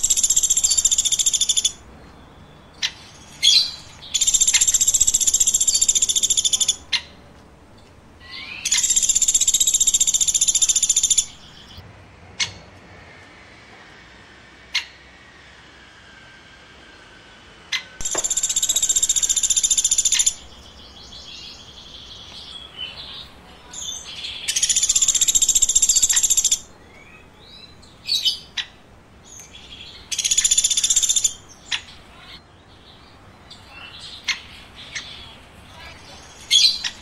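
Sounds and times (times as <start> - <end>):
woodpecker rattling trills: 0.0 - 7.2, 8.2 - 11.8, 18.0 - 32.2
woodpecker sharp single calls: 2.8 - 7.1, 18.0 - 21.5, 23.7 - 32.0.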